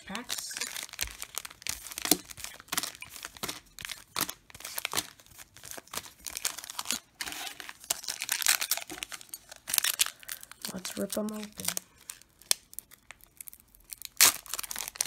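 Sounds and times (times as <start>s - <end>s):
card pack wrappers crinkling: 0.0s - 15.0s.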